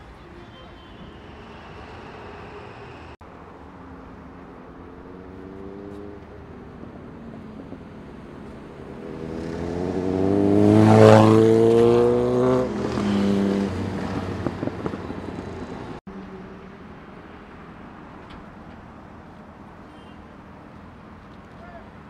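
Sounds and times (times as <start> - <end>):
motorcycle accelerating past: 4.6 - 16.7.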